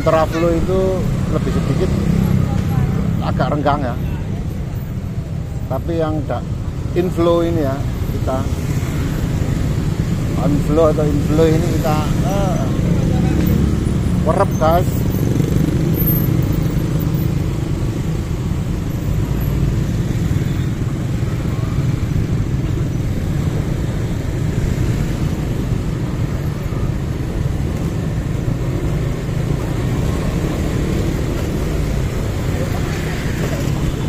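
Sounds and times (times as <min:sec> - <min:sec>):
traffic drone: 0:00.0 - 0:34.0.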